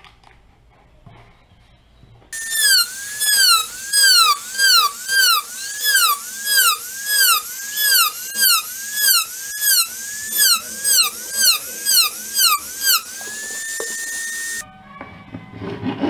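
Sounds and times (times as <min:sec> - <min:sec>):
rotary tool high whine: 0:02.4 - 0:14.6.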